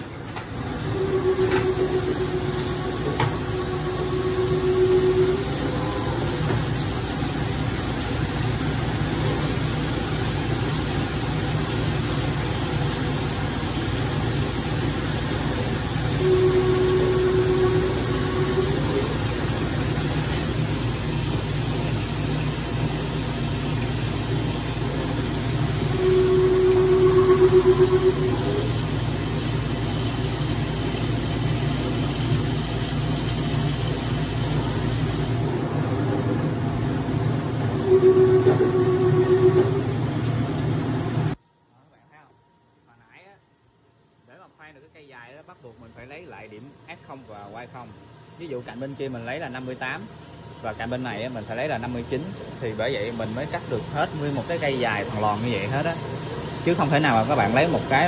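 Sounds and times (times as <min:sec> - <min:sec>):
milling machine cutting metal: 0:00.0 - 0:07.3, 0:15.6 - 0:23.0
coolant hiss: 0:00.0 - 0:42.3, 0:42.9 - 0:58.0
steady pitched note: 0:00.8 - 0:06.5, 0:16.2 - 0:19.5, 0:25.8 - 0:28.9, 0:37.8 - 0:40.0.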